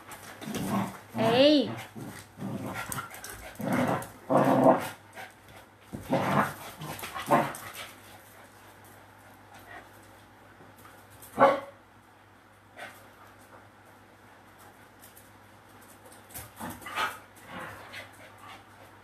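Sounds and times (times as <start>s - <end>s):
small dogs barking: 11.4s - 11.8s.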